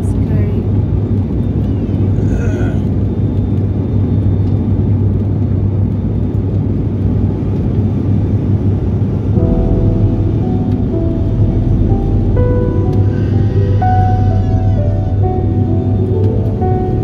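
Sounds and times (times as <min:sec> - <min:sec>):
turboprop cabin drone: 0:00.0 - 0:17.0.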